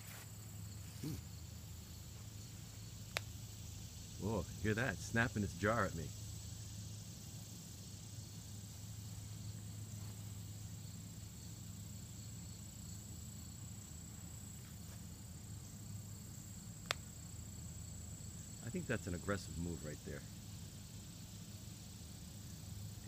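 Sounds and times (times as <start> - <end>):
faint steady hum: 0.0 - 23.0
owl snapping its bill: 3.1 - 3.4, 16.8 - 17.1.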